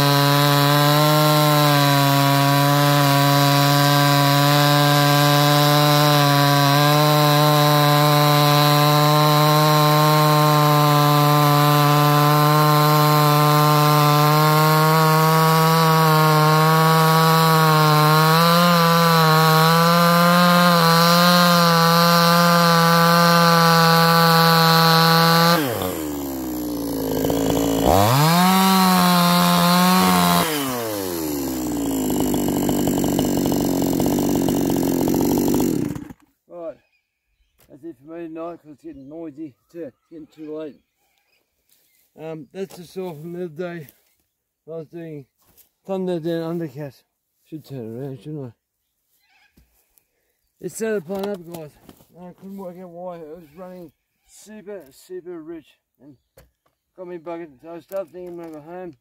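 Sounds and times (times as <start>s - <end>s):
chainsaw cutting log: 0.0s - 36.3s.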